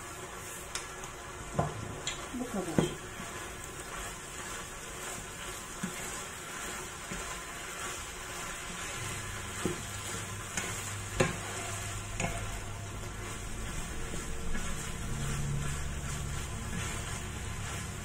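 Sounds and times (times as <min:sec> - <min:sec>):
chicken sizzling in a frying pan: 0:00.0 - 0:18.0
wooden spatula knocking on pan: 0:01.5 - 0:01.8, 0:02.7 - 0:03.0, 0:09.5 - 0:09.9, 0:10.5 - 0:12.7.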